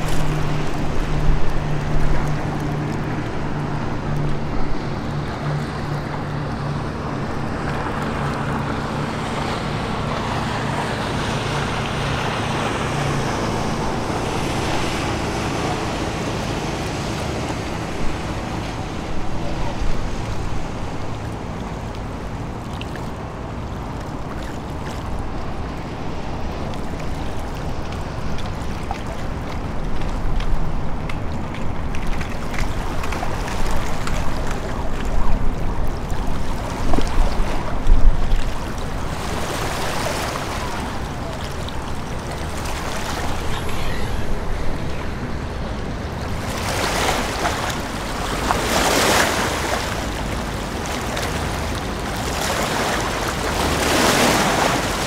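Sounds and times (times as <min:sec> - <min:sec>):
ship engine rumble: 0:00.0 - 0:55.0
water wash: 0:00.0 - 0:55.0
wind on microphone: 0:25.0 - 0:49.7.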